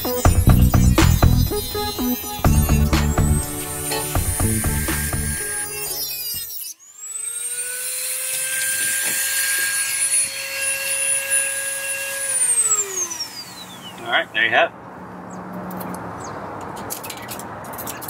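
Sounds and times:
rotary tool high whine: 0:00.0 - 0:14.4.

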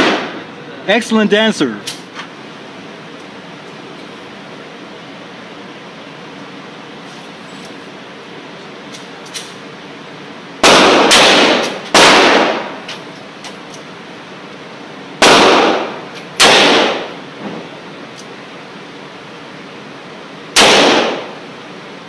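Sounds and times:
revolver shots echoing indoors: 0:00.0 - 0:00.5, 0:10.6 - 0:13.1, 0:15.2 - 0:18.3, 0:20.5 - 0:21.6.

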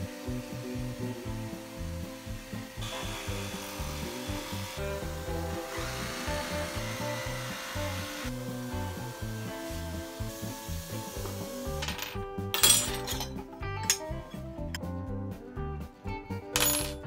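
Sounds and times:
power saw cutting wood: 0:00.0 - 0:11.9
background music: 0:00.0 - 0:17.0.

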